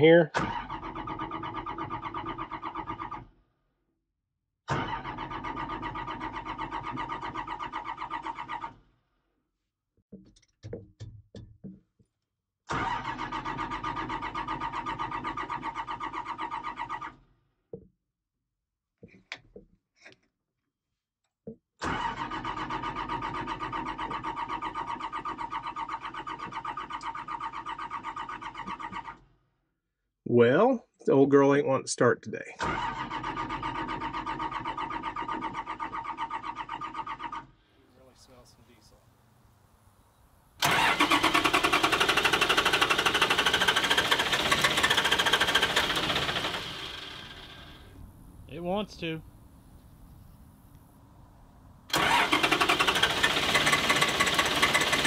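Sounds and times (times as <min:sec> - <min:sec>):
diesel engine cranking on starter: 0:00.3 - 0:03.3, 0:04.7 - 0:08.9, 0:12.7 - 0:17.3, 0:21.8 - 0:29.3, 0:32.6 - 0:39.3, 0:40.6 - 0:51.1, 0:51.8 - 0:55.0.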